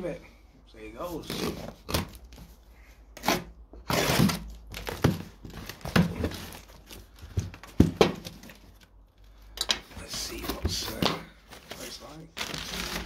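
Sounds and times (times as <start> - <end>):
packing tape ripping: 1.2 - 2.3, 3.2 - 6.8, 11.8 - 13.0
cardboard flaps rustling and knocking: 4.2 - 8.8.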